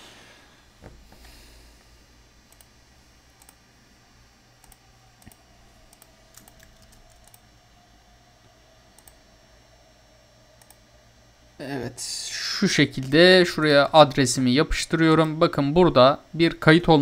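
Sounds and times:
faint keyboard clicks: 2.5 - 2.7, 3.4 - 3.6, 4.6 - 7.4.

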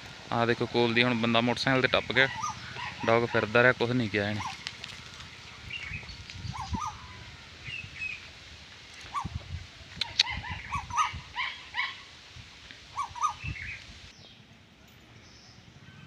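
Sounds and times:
dog barking: 9.1 - 9.4.

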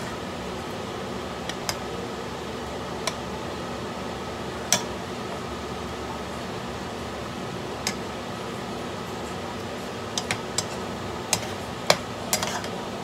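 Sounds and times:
fan-like hum and hiss: 0.0 - 13.0.

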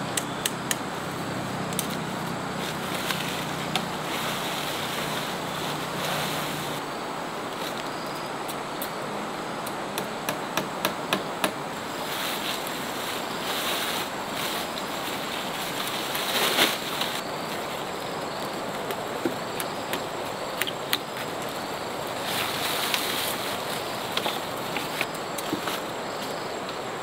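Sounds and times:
rushing outdoor noise: 0.0 - 27.0
loud rustle: 0.9 - 6.8, 11.8 - 19.1, 20.3 - 26.5.

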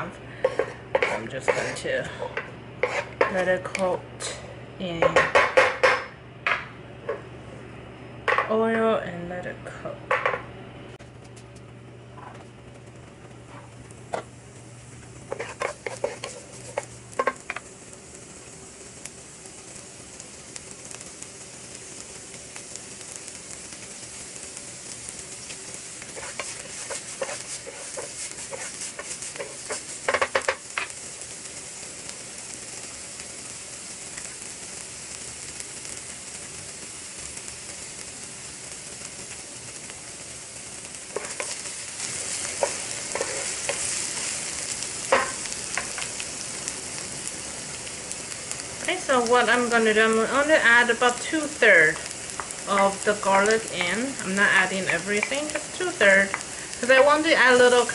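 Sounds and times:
onion sizzling in frying pan: 0.0 - 9.5, 10.1 - 57.9
spatula scraping and knocking pan: 0.4 - 3.9, 5.0 - 7.2, 15.0 - 17.6, 25.4 - 30.9, 41.1 - 46.1, 51.2 - 57.9.

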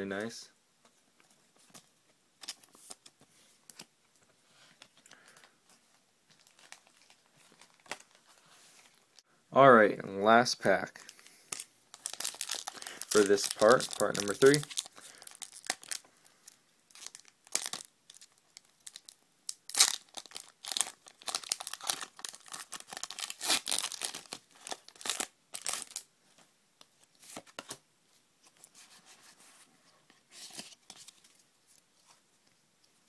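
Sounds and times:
cards rustling: 11.0 - 16.1
foil wrapper crinkling and tearing: 11.5 - 26.1.

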